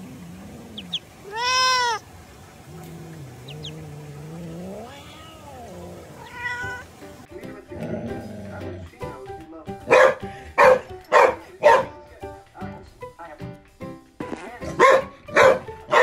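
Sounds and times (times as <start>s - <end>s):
cat meowing: 0.8s - 2.0s, 3.2s - 7.0s.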